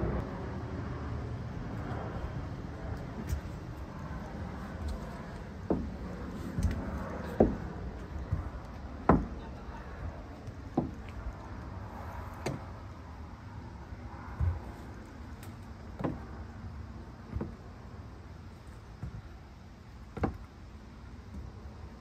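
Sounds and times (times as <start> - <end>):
low background rumble: 0.0 - 22.0
crutch tips knocking on wooden deck: 5.6 - 9.5, 10.6 - 11.2, 14.3 - 14.8, 15.9 - 16.3, 17.3 - 17.7, 20.1 - 20.5.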